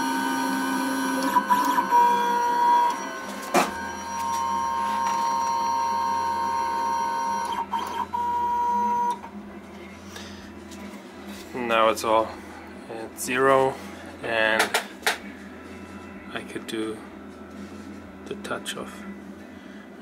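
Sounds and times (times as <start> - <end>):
stepper motor whine: 0.0 - 9.2.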